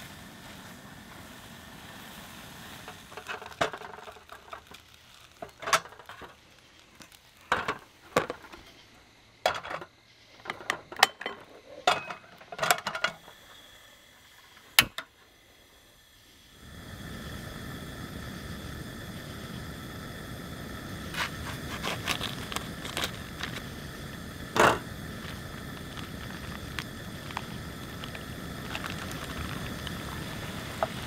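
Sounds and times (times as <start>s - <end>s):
steady hiss: 0.0s - 31.0s
metal cookware clanking: 9.5s - 9.9s, 10.5s - 13.2s.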